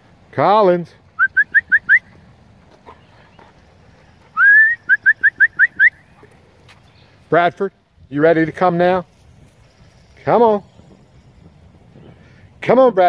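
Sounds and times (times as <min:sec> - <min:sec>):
person whistling: 0:01.2 - 0:02.1, 0:04.4 - 0:06.0.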